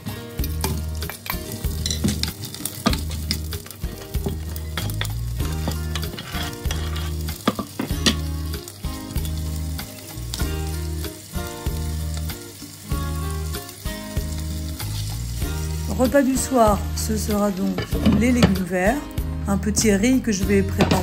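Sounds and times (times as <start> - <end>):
vegetables sizzling in a pot: 0.0 - 21.0
spatula scraping a pan: 1.0 - 8.3
music with bass beat: 2.9 - 16.0.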